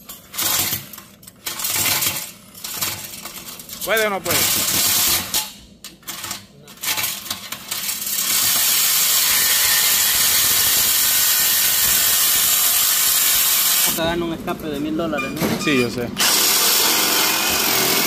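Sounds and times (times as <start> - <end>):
reciprocating saw cutting steel pipe: 8.3 - 14.0.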